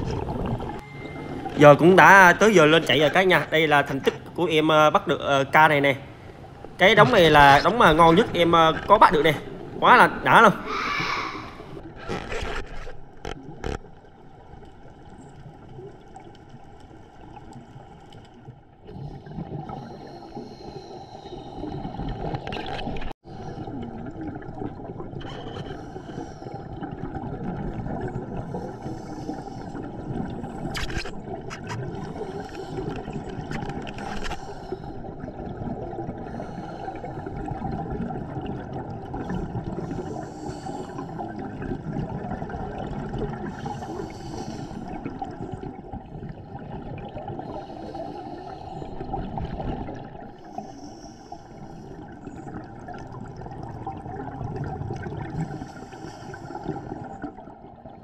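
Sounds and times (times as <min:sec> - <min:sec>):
underwater water rushing: 0:00.0 - 0:58.0
bubbling of exhaled breath: 0:06.1 - 0:12.6, 0:18.8 - 0:58.0.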